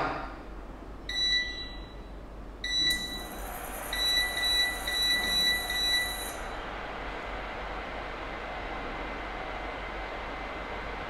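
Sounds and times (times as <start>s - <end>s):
faint high whine: 1.0s - 11.0s
touch panel beeps: 1.1s - 2.0s, 2.6s - 6.4s.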